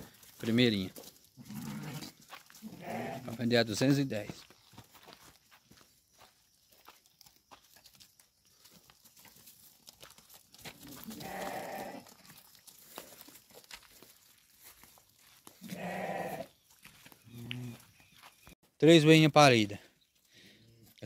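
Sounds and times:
hooves clicking and scuffing: 0.0 - 21.0
sheep bleating: 1.4 - 3.4, 10.8 - 12.2, 15.6 - 16.5.

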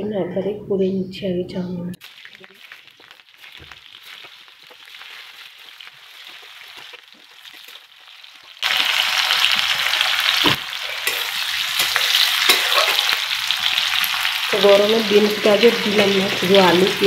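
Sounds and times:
oil frying sizzle: 2.0 - 17.0
metal spatula clinking on pan: 11.0 - 13.0.

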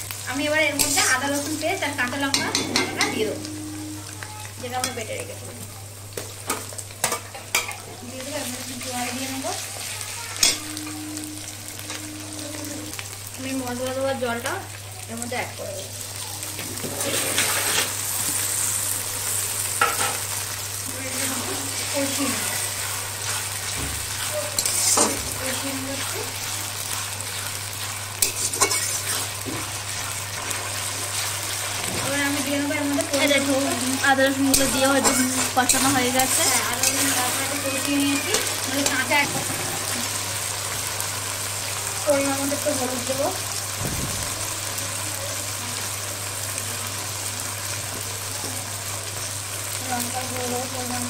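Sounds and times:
spice paste sizzling in oil: 0.0 - 51.0
metal spatula scraping pan: 0.7 - 1.6, 2.2 - 3.7, 16.8 - 18.7, 21.1 - 32.5, 34.4 - 40.0.

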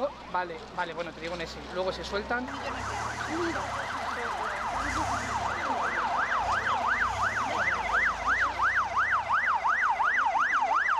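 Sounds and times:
emergency siren yelping: 2.5 - 10.9.

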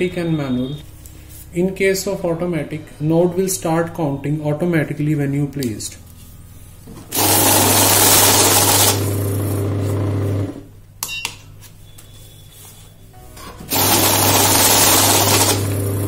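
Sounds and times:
banknotes rushing through: 7.1 - 9.6, 13.7 - 16.0
money counting machine whirring: 7.1 - 10.6, 13.6 - 16.0.

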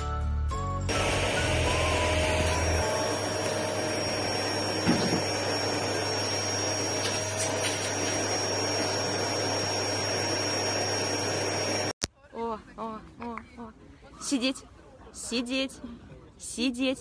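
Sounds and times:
vacuum cleaner running: 0.9 - 12.0.

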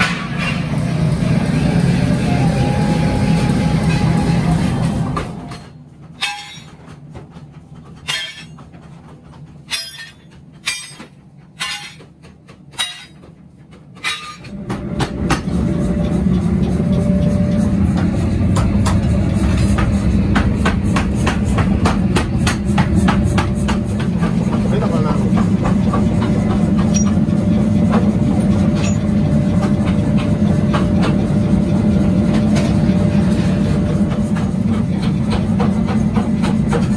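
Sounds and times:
low machinery rumble with clicks: 0.1 - 36.9
steel plates clanking on metal: 5.5 - 7.1, 8.0 - 8.7, 9.6 - 13.2, 14.0 - 14.5.

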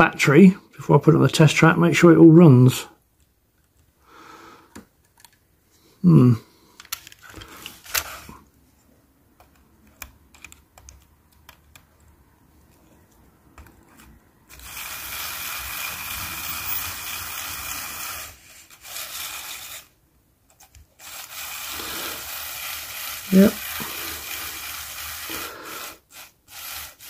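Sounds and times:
model locomotive motor running: 14.5 - 20.0, 21.0 - 27.0.

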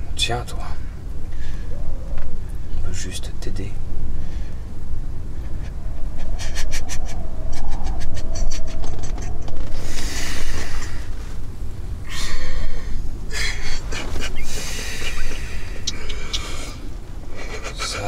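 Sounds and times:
steady low rumble: 0.0 - 18.0
man panting and gasping: 12.0 - 18.0.

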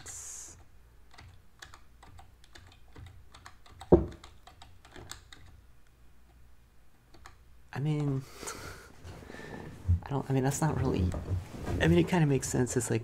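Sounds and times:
keyboard keys clicking: 1.1 - 5.6
loud thump: 3.9 - 4.2.

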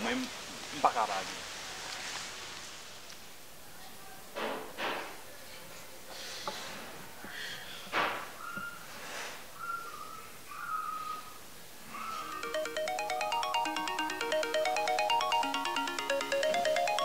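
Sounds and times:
breathy exhales: 8.8 - 9.6.

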